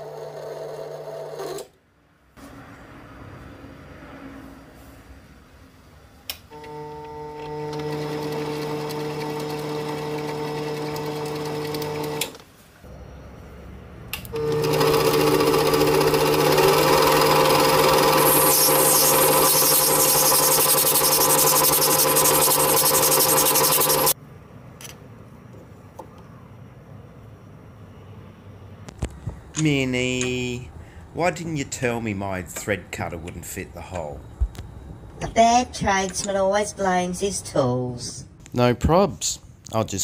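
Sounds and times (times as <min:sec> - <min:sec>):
lathe motor humming: 0:06.6 - 0:12.3, 0:14.4 - 0:24.2.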